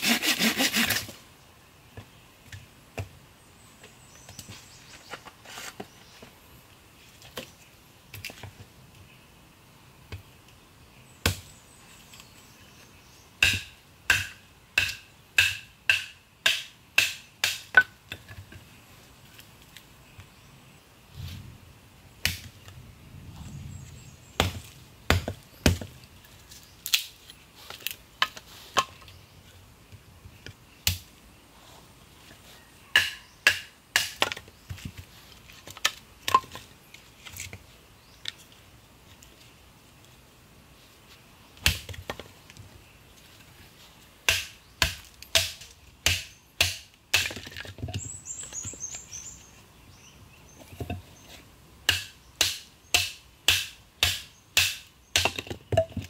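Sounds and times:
machete chopping wood: 0:11.2 - 0:11.5, 0:13.4 - 0:18.0, 0:22.2 - 0:22.5, 0:24.4 - 0:26.0, 0:32.9 - 0:34.4, 0:41.6 - 0:42.2, 0:44.3 - 0:47.7, 0:51.9 - 0:56.0.

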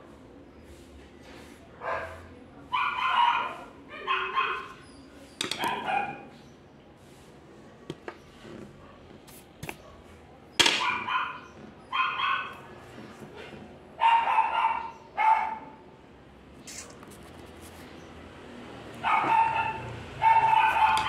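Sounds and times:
dog barking: 0:01.8 - 0:04.8, 0:05.6 - 0:06.4, 0:10.8 - 0:12.7, 0:14.0 - 0:15.8, 0:19.0 - 0:21.0.

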